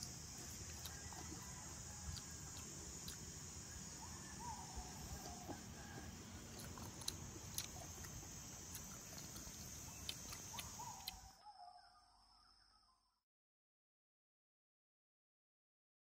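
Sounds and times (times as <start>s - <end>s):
insect drone: 0.0s - 13.2s
bird calls: 3.7s - 6.1s, 9.9s - 13.0s.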